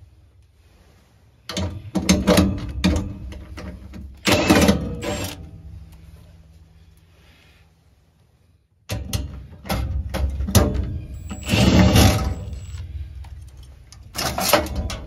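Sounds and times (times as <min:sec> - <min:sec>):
cordless drill running: 0:04.2 - 0:05.4, 0:11.1 - 0:12.8.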